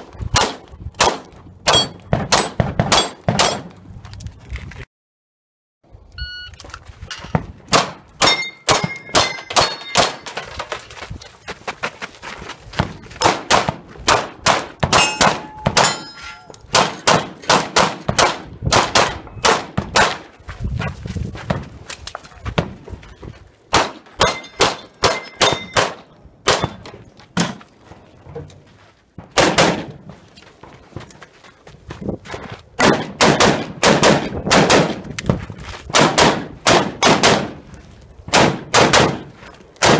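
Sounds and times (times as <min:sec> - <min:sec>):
steel targets ringing clang: 0:01.7 - 0:03.8, 0:08.2 - 0:10.4, 0:15.0 - 0:17.1, 0:24.2 - 0:26.0
pistol shots: 0:13.2 - 0:16.0, 0:16.7 - 0:20.2, 0:23.7 - 0:26.8, 0:29.3 - 0:30.0, 0:32.8 - 0:35.0, 0:35.9 - 0:37.6, 0:38.3 - 0:39.9.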